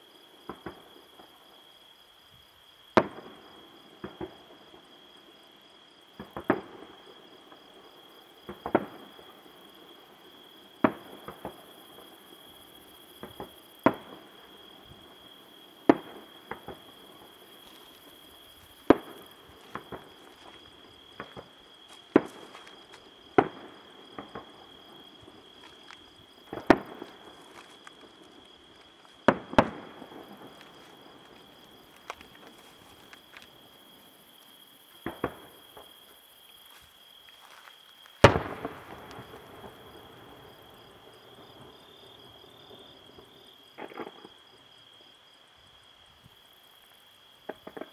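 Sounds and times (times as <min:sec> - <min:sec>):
small firework pops: 0:00.5 - 0:00.9, 0:03.0 - 0:03.3, 0:04.0 - 0:04.4, 0:06.2 - 0:06.8, 0:08.5 - 0:09.1, 0:10.8 - 0:11.6, 0:13.2 - 0:14.3, 0:15.8 - 0:17.0, 0:17.7 - 0:24.6, 0:25.2 - 0:33.6, 0:35.0 - 0:36.2, 0:38.1 - 0:40.2, 0:43.2 - 0:44.4, 0:47.5 - 0:47.9.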